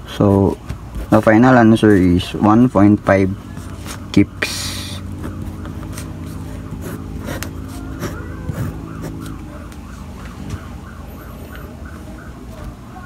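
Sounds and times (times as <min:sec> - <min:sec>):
steady low hum: 0:00.0 - 0:13.0
siren yelping: 0:04.8 - 0:13.0
pen scratching on paper: 0:05.0 - 0:09.4.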